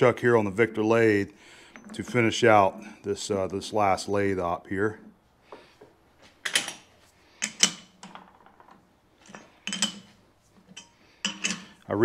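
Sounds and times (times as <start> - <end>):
metal-on-metal clanks: 1.6 - 3.0, 9.2 - 11.8.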